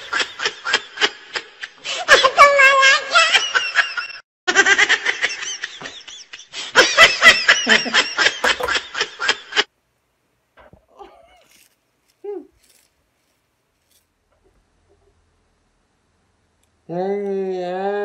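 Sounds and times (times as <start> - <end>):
crunchy food being chewed: 10.6 - 14.5.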